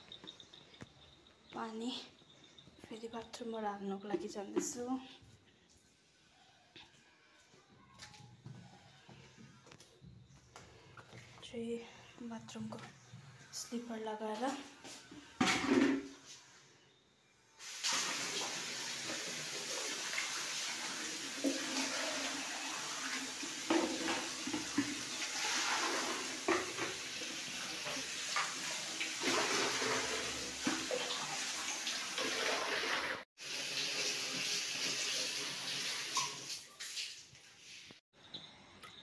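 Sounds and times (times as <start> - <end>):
tap water into plastic buckets: 17.6 - 37.5.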